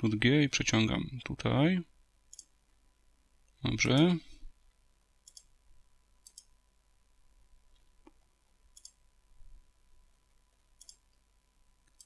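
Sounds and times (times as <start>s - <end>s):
keyboard and mouse clicks: 2.3s - 2.5s, 5.2s - 5.5s, 6.2s - 6.5s, 7.7s - 9.0s, 10.8s - 11.2s.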